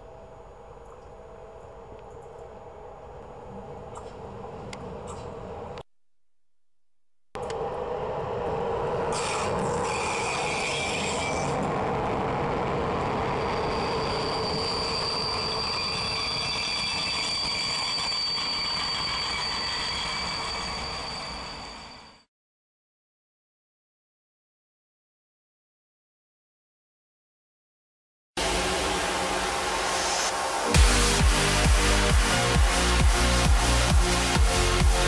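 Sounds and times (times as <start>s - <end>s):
wheels squealing: 9.1s - 11.8s, 13.1s - 22.2s.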